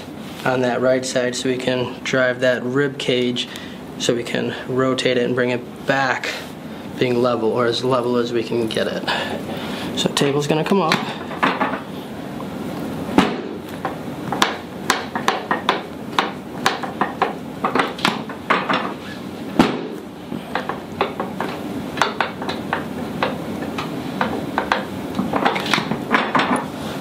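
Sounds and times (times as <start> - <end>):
sharp knock: 19.6 - 20.0.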